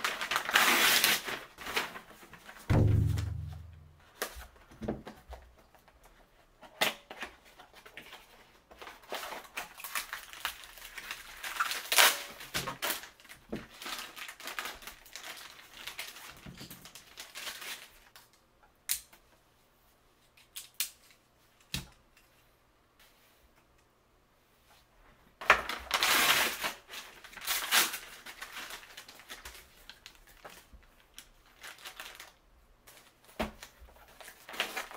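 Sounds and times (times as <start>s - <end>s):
packaging crinkling and tearing: 0.0s - 2.6s, 6.7s - 18.3s, 25.4s - 34.9s.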